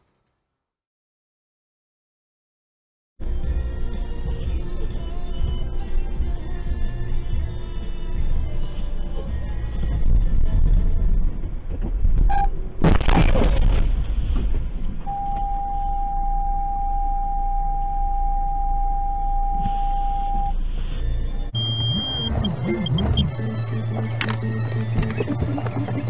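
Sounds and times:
car crash: 12.8s - 15.0s
steady high beep: 15.1s - 20.6s, 21.3s - 25.4s.

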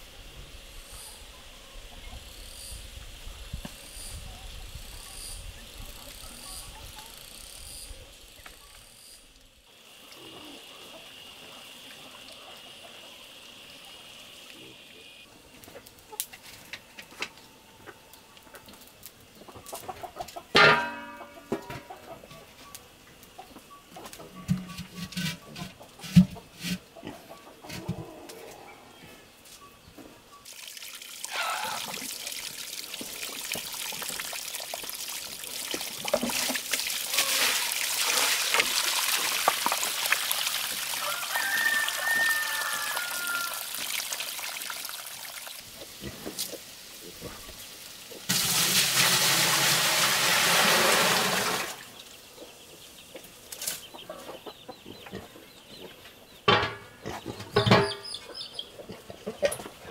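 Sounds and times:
chickens clucking: 10.1s - 30.4s, 52.3s - 59.9s
water pouring and splashing: 30.4s - 52.2s.

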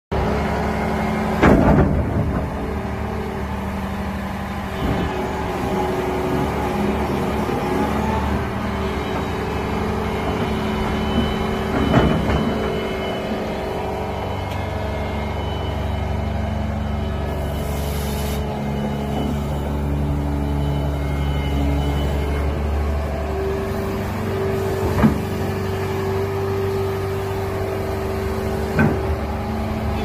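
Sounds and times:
excavator diesel engine: 0.1s - 30.0s
hydraulics working: 0.1s - 30.0s
loud knocks: 1.4s - 2.8s.

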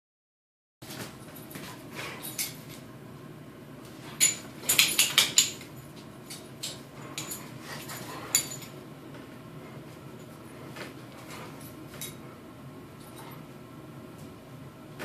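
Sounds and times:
dogs play-fighting: 0.8s - 2.9s, 3.8s - 14.3s
claws clicking on tile floor: 4.2s - 7.4s.

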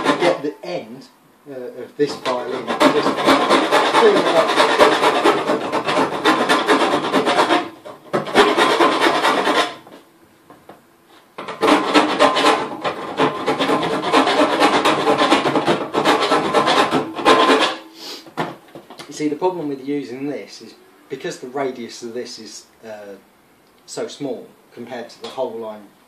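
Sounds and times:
hand file rasping on metal: 0.0s - 0.4s, 2.1s - 9.8s, 11.4s - 17.8s.

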